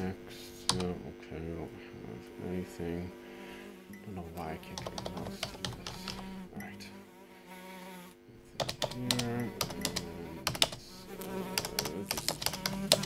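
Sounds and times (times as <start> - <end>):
keyboard typing clicks: 0.6 - 0.9, 4.7 - 6.3, 8.6 - 10.8, 11.5 - 13.0
fly buzzing: 1.9 - 13.0.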